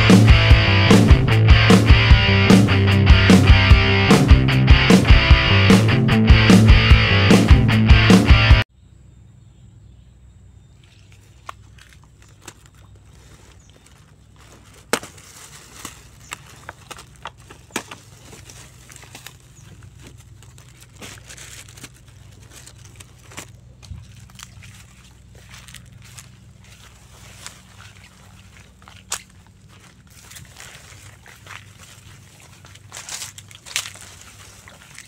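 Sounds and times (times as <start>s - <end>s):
rock music: 0.0s - 8.6s
sharp crackles and knocks: 10.8s - 35.0s.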